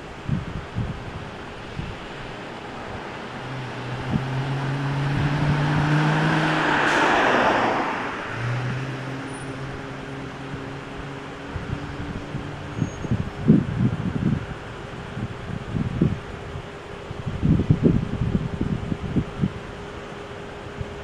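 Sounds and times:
vehicle passing by: 1.7s - 14.5s.

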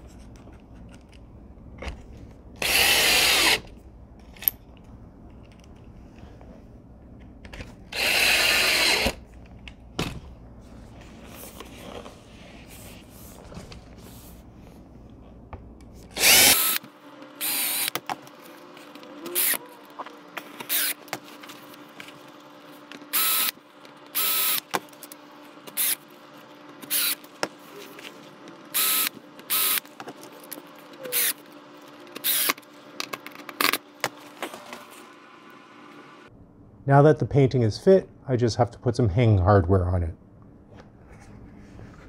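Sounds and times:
cordless drill bursts: 2.6s - 3.6s, 7.9s - 9.2s, 16.2s - 16.8s, 17.4s - 18.0s, 20.7s - 21.0s, 23.1s - 23.6s, 24.2s - 24.7s, 25.8s - 26.0s, 26.8s - 27.2s, 28.7s - 29.8s, 31.1s - 31.4s, 32.2s - 32.6s.

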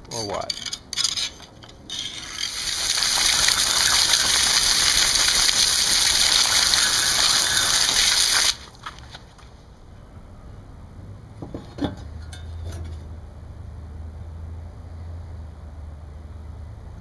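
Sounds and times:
water spray hitting metal pan: 1.9s - 8.6s.

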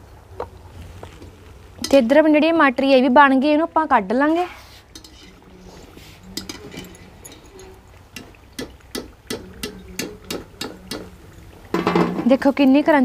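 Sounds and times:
skimmer clinking against metal pan: 6.2s - 11.1s.

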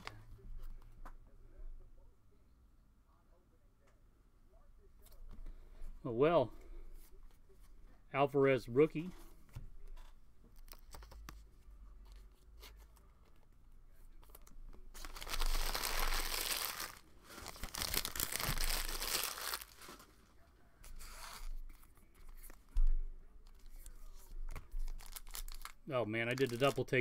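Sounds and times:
plastic wrapper tearing: 14.3s - 20.1s, 24.5s - 27.0s.

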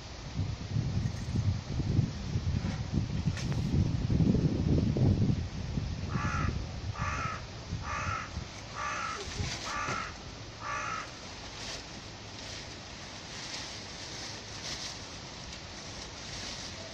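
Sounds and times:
crow cawing: 6.1s - 11.2s.

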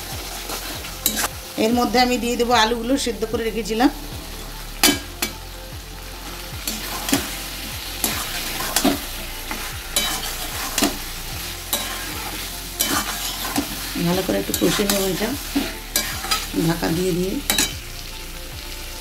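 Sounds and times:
frying sizzle: 0.0s - 19.0s
metal spatula scraping a pan: 0.3s - 1.3s, 6.3s - 17.8s.

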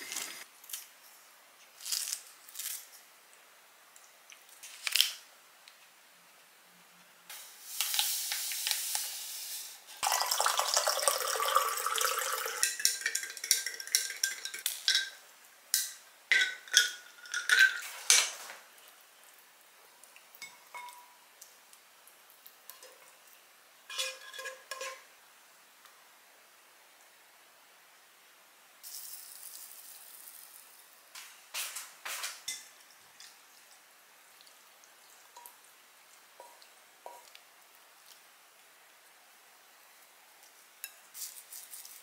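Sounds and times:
powder poured with a hiss: 7.3s - 10.0s, 28.8s - 30.9s
water pouring into glass: 10.0s - 14.6s
spoon stirring and clinking glass: 11.3s - 15.2s, 15.8s - 18.0s, 20.4s - 21.2s, 23.9s - 25.0s.

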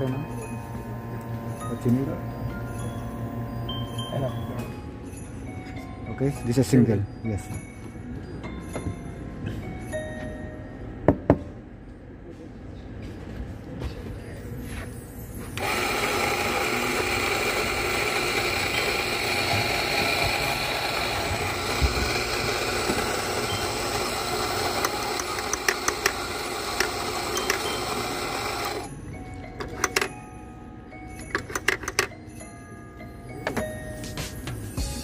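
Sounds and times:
coffee grinder motor whining: 0.0s - 4.6s, 15.6s - 28.9s.

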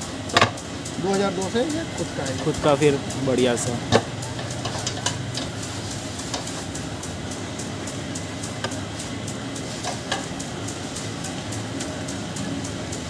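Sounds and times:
fast even ticking: 0.0s - 13.0s
machine hum: 0.0s - 13.0s
spanner clinking on metal: 0.3s - 7.4s.

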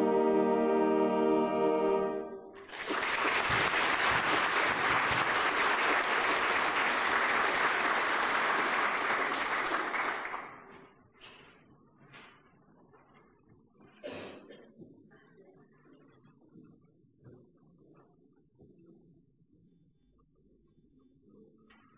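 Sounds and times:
held musical chord: 0.0s - 2.6s
audience applauding: 2.6s - 10.7s.

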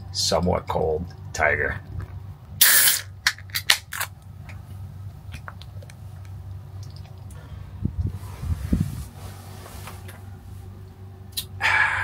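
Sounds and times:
steady low hum: 0.0s - 12.0s
beer can popping open: 2.6s - 4.1s.

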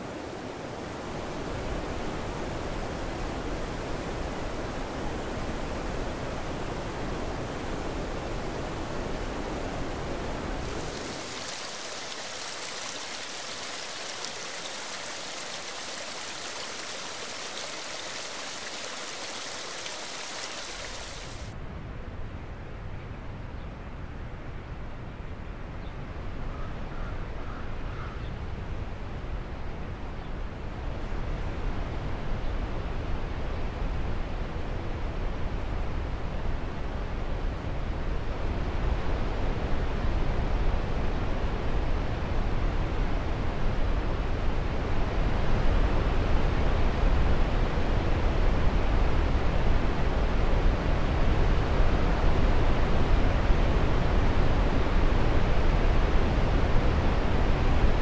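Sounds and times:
distant waterfall roar: 0.0s - 21.6s
wind rumble: 9.4s - 21.5s.

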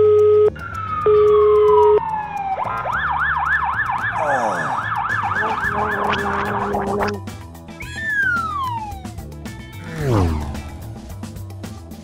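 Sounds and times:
ambulance siren yelp: 0.5s - 7.2s, 7.8s - 9.2s.

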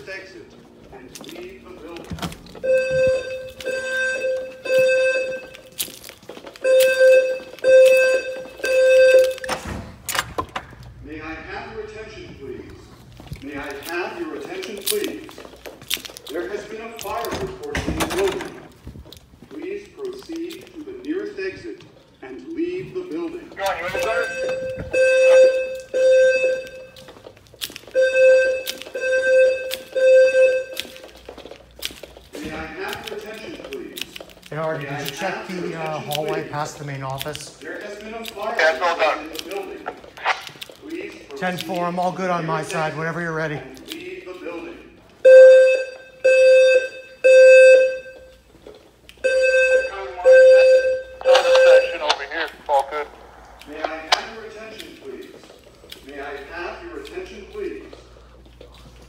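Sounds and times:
pulsing fire alarm tone: 2.6s - 5.8s, 6.6s - 9.6s, 23.8s - 27.2s, 28.0s - 31.1s, 45.2s - 48.3s, 49.2s - 52.0s.

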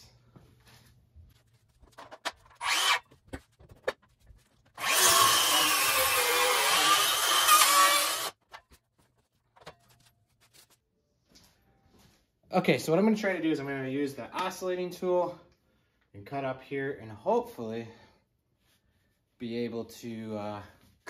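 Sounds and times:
power saw cutting wood: 2.6s - 3.0s, 4.8s - 8.4s.

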